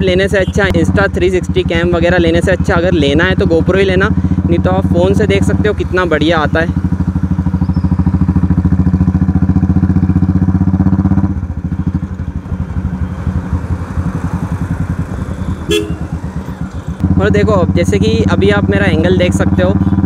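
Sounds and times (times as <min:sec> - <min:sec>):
motorcycle engine running: 0:00.0 - 0:20.0
horn toot: 0:15.6 - 0:16.4.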